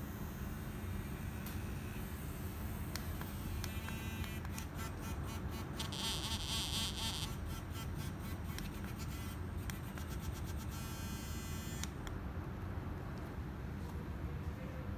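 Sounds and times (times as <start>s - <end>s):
vibration motor buzzing: 0.0s - 12.1s.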